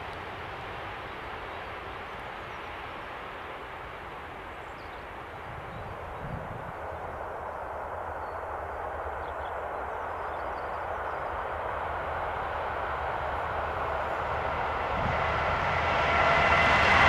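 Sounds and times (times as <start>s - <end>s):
train wheels rolling on rails: 6.7s - 17.0s.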